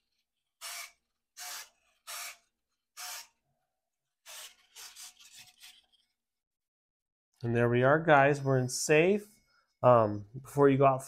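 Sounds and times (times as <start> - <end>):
foam plane rustling in hands: 4.4 - 6.2.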